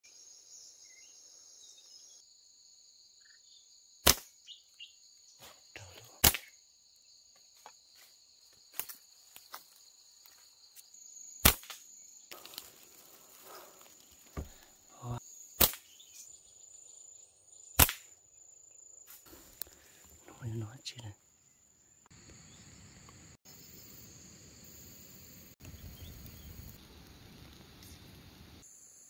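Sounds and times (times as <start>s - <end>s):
insects chorus: 0.0s - 29.0s
loud sharp cracks: 4.0s - 4.4s, 6.2s - 6.5s, 11.4s - 11.9s, 15.6s - 15.9s, 17.8s - 18.2s.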